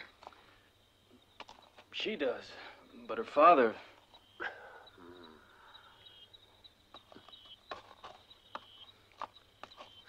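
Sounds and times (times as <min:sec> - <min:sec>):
faint high chirps: 0:02.8 - 0:10.0.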